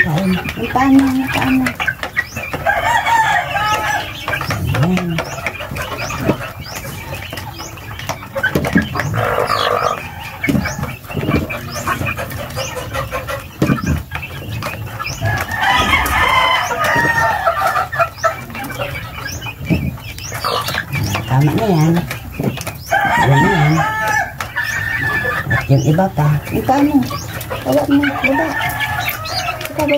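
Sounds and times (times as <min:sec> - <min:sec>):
chickens clucking: 0:00.0 - 0:29.9
rooster crowing: 0:02.6 - 0:04.2, 0:15.2 - 0:17.8, 0:22.9 - 0:24.4.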